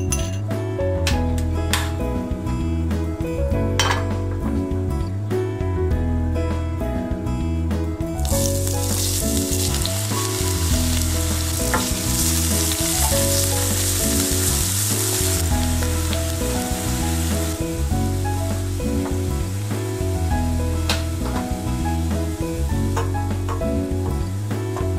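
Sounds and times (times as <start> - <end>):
background music: 0.0 - 24.9
shallots sizzling in hot oil: 8.2 - 23.5.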